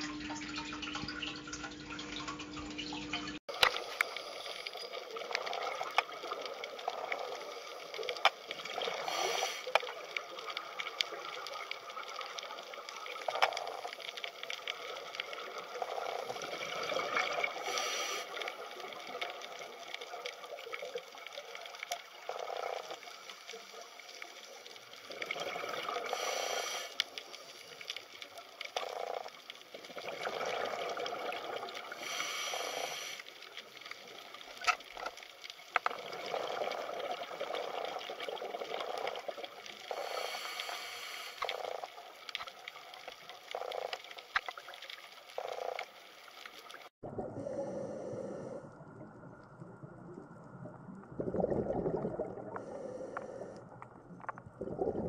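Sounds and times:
water bubbling gush: 0:00.0 - 0:47.6, 0:48.4 - 0:55.0
underwater hiss with crackling clicks: 0:03.5 - 0:46.9, 0:52.5 - 0:54.4.

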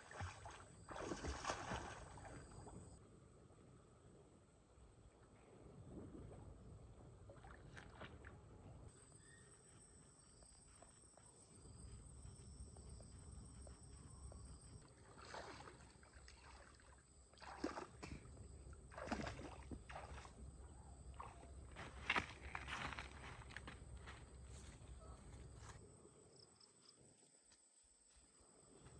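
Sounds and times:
water splashing around wading person: 0:00.0 - 0:02.9, 0:07.3 - 0:08.5, 0:14.8 - 0:23.6.

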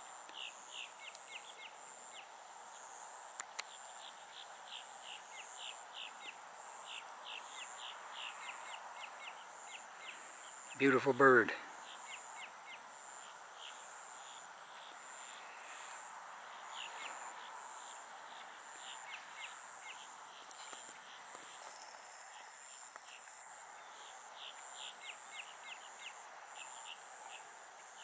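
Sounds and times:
insect trilling chirps: 0:11.8 - 0:27.0
higher insect buzz: 0:13.0 - 0:23.6.

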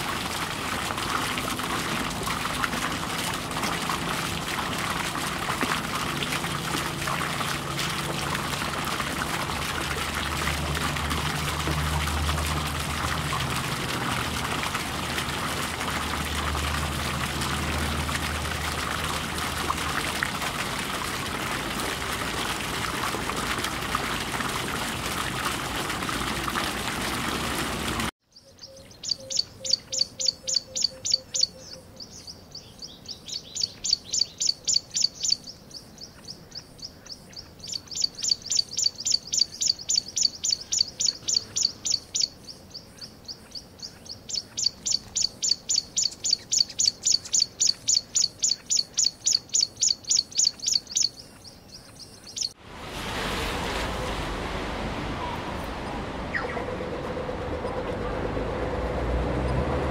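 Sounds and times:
aquarium water bubbling: 0:00.0 - 0:28.2, 0:52.5 - 0:59.9
small bird chirping: 0:28.3 - 0:52.6.

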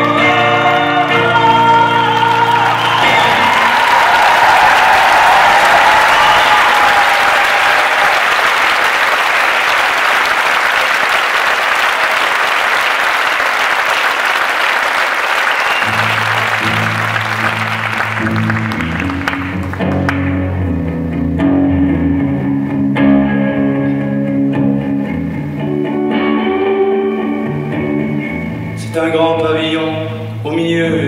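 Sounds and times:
audience applauding: 0:00.0 - 0:20.5
electric guitar low notes: 0:15.8 - 0:31.0.

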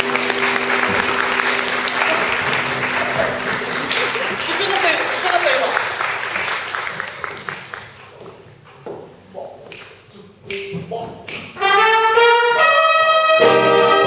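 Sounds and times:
wind band playing chords: 0:00.0 - 0:05.6, 0:11.5 - 0:14.0
applause: 0:00.0 - 0:08.0.

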